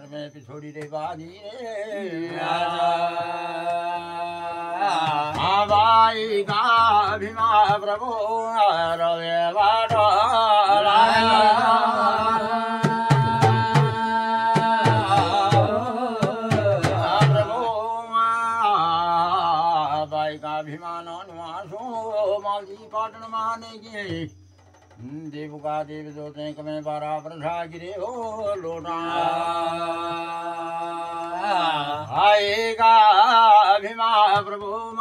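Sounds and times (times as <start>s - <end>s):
devotional singing: 0.0s - 24.4s, 25.0s - 35.0s
hand drum beating: 11.0s - 17.6s.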